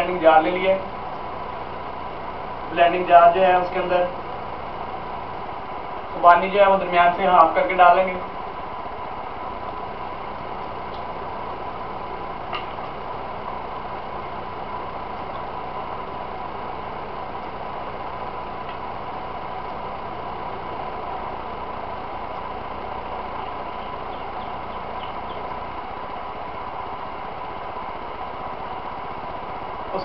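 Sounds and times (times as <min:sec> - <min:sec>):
faint constant tone: 0:00.0 - 0:30.0
machine hum: 0:00.0 - 0:30.0.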